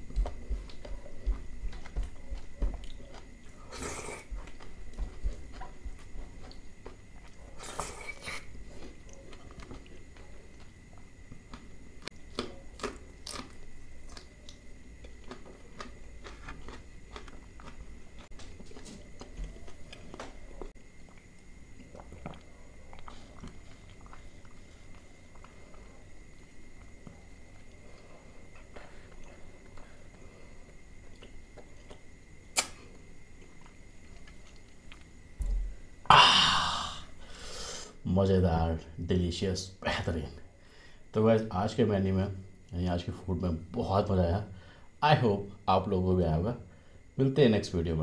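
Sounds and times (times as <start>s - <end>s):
wet chewing and lip smacks: 0.2s - 10.7s, 11.4s - 25.6s.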